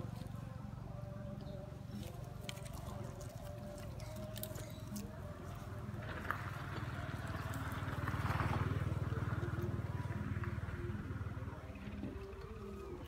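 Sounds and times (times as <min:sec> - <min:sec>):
pulsing engine rumble: 0:00.0 - 0:13.0.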